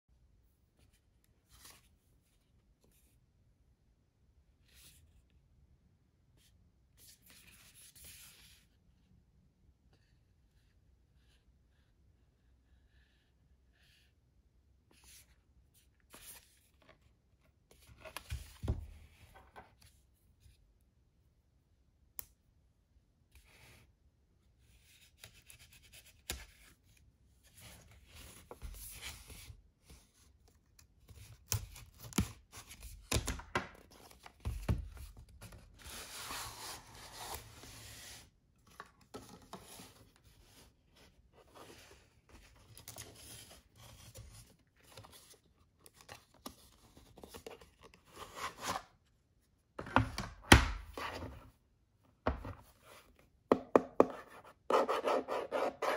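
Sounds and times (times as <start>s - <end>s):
cardboard rustling and sliding: 34.0s - 45.4s.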